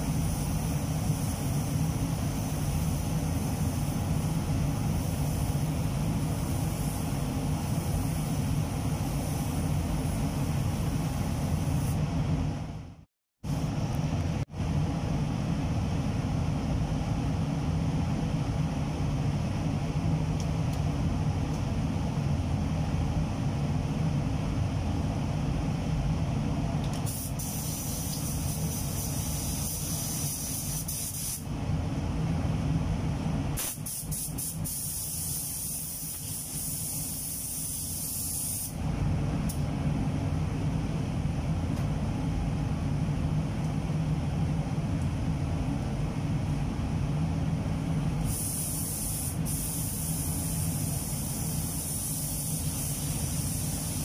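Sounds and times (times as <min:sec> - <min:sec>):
ventilation drone: 0:00.0 - 0:54.0
paint spray gun hissing: 0:00.1 - 0:04.3, 0:27.1 - 0:31.4, 0:33.6 - 0:38.8, 0:48.2 - 0:54.0.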